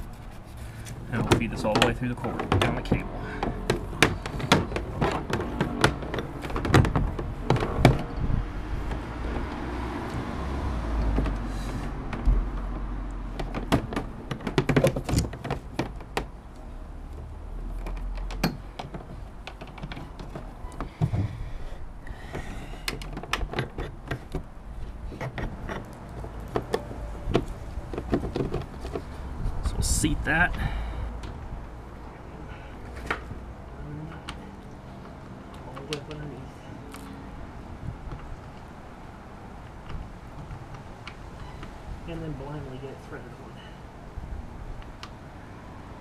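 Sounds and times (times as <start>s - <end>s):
cable rubbing and sliding: 0.0s - 9.5s
knocks and clicks against hull: 1.2s - 8.2s.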